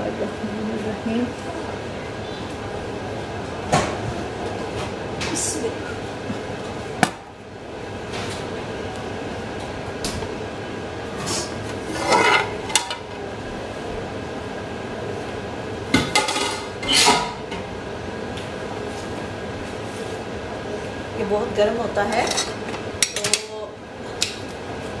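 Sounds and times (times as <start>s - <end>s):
metal pot clanking and scraping: 11.8s - 13.0s.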